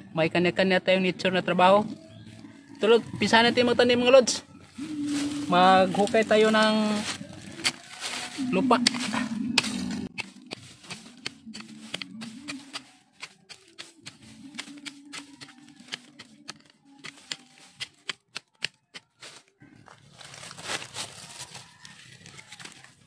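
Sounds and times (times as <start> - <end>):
blade chopping stony soil: 8.8 - 19.2.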